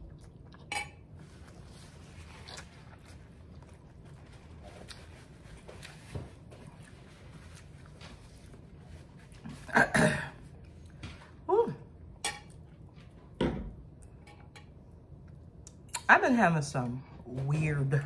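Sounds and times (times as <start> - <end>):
faint chewing: 0.0 - 9.7.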